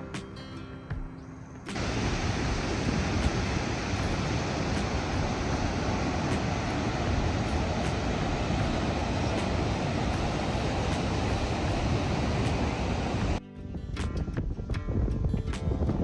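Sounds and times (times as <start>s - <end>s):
surf breaking on rocky shore: 1.7s - 13.4s
wind rumbling on microphone: 1.7s - 16.0s.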